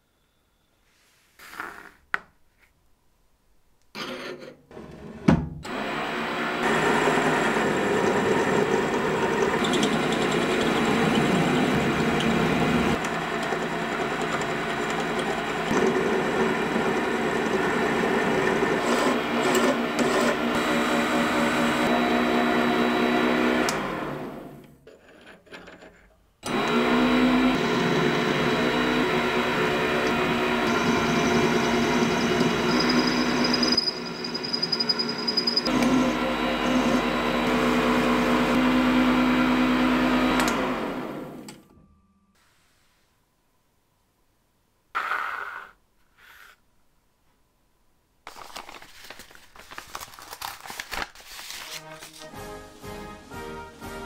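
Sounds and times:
metal lathe running: 6.6s - 21.9s, 26.5s - 39.1s.

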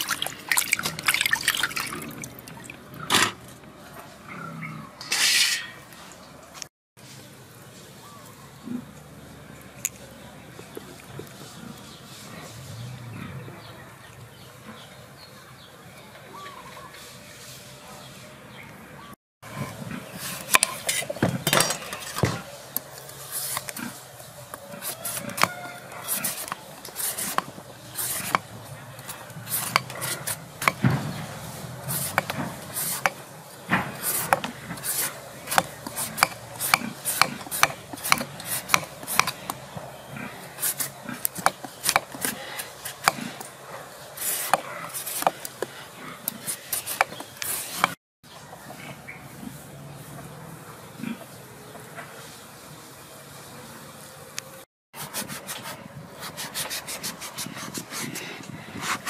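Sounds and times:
vegetable peeler scraping skin: 24.8s - 30.8s, 31.8s - 33.2s, 33.9s - 39.6s, 40.5s - 43.4s, 44.2s - 45.6s, 46.3s - 48.0s.

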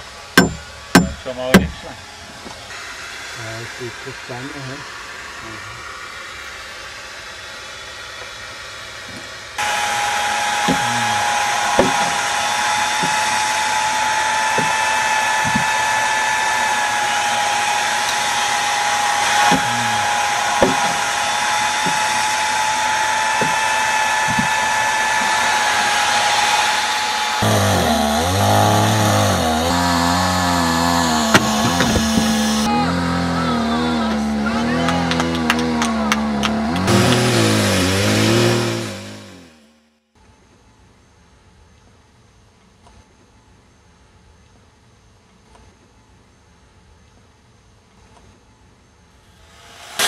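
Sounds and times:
power tool whining: 0.0s - 39.8s, 49.3s - 50.0s
short knocks: 0.4s - 1.9s, 10.6s - 12.2s, 14.5s - 14.8s, 15.4s - 15.8s, 20.6s - 21.0s, 23.4s - 24.6s, 31.2s - 32.7s.

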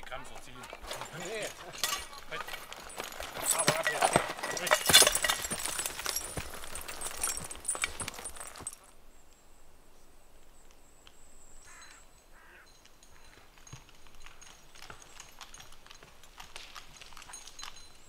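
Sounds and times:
hooves and dragged wood knocking: 0.0s - 8.9s, 12.8s - 18.0s.

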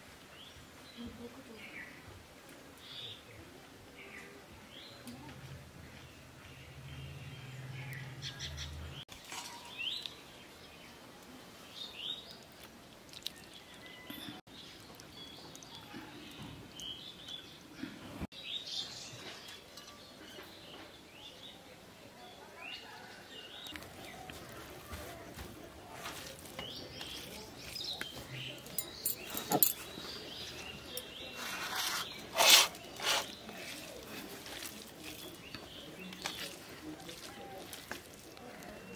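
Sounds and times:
faint outdoor ambience: 0.0s - 38.9s
birds chirping: 2.8s - 11.0s, 25.8s - 38.9s
wet eating noises: 12.2s - 14.0s, 32.1s - 38.9s.

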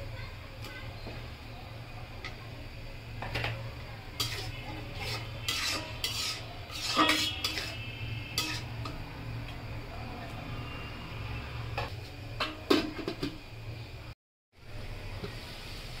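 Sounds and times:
metal spatula scraping a wok: 3.4s - 9.1s.

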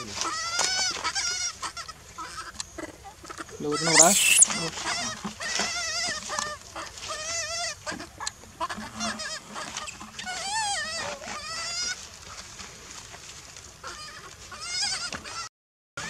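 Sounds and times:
baby monkey crying: 3.8s - 4.5s.

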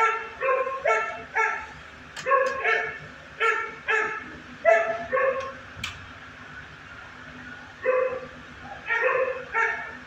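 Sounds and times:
dog barking: 0.0s - 5.6s, 7.8s - 10.0s.

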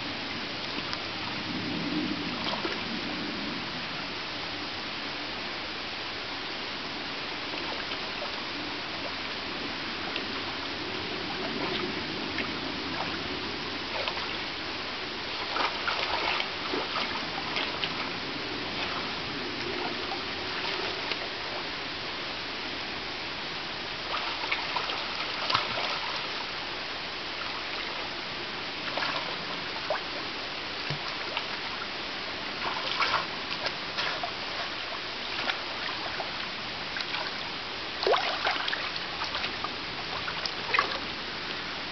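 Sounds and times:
trickling flowing water: 0.0s - 41.9s
otters splashing in water: 15.4s - 19.1s, 24.1s - 26.4s, 32.6s - 37.4s, 38.0s - 41.0s.

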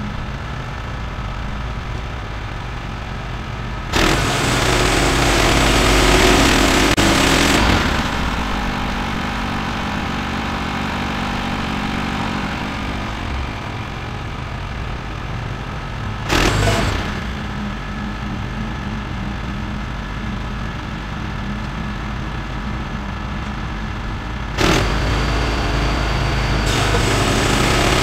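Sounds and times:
small gasoline engine running: 0.0s - 20.4s, 21.4s - 28.0s
band blade sawing log: 3.9s - 8.2s, 16.3s - 17.3s.

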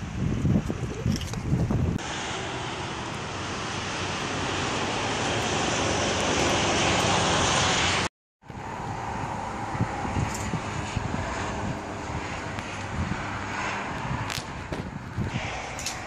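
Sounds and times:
wind buffeting microphone: 0.0s - 2.0s, 8.5s - 16.0s
rushing outdoor noise: 0.0s - 16.0s.

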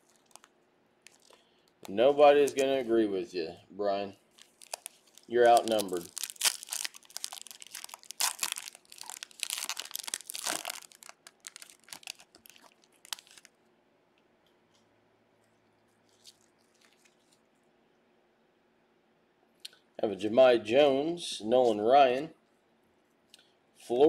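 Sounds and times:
plastic wrapper tearing and crinkling: 0.0s - 2.8s, 4.3s - 13.6s, 16.0s - 17.4s.

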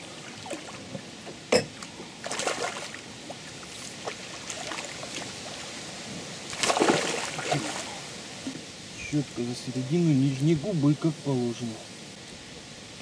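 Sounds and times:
fish splashing in water: 2.2s - 5.6s, 6.5s - 8.1s.

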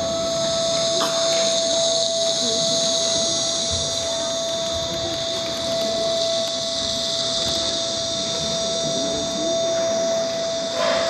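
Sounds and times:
loud electronic hiss: 0.0s - 11.0s.

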